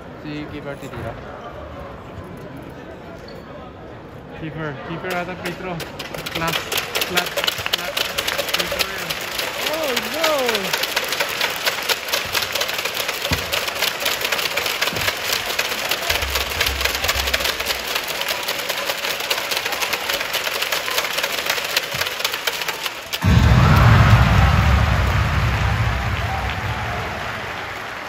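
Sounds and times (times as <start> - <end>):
crowd clapping: 5.7 - 28.0.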